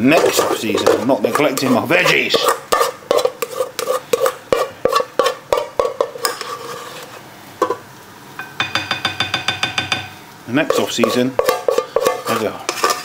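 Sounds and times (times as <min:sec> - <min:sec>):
utensil scraping a cooking pot: 0:00.0 - 0:07.8, 0:10.6 - 0:13.0.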